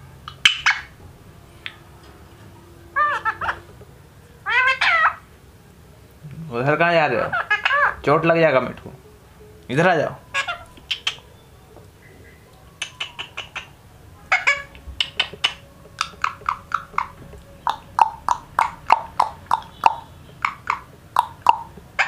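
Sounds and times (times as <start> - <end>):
parakeet clicking chirps: 0.2 - 1.0, 10.4 - 22.0.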